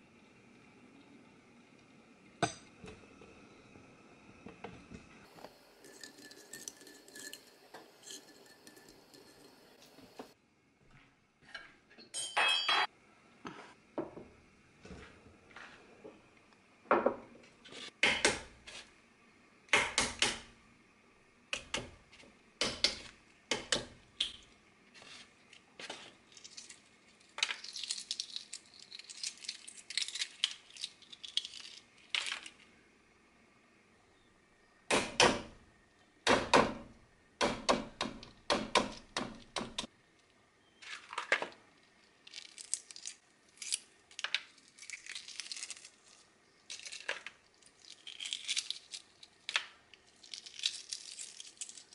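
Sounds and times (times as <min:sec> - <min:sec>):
eggshell crackling while peeled: 0:26.1 - 0:32.7, 0:41.0 - 0:51.9.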